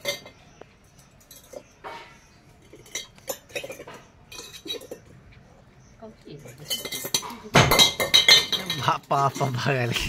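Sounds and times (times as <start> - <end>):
metal pot clinking and scraping: 0.0 - 5.2, 6.3 - 10.0.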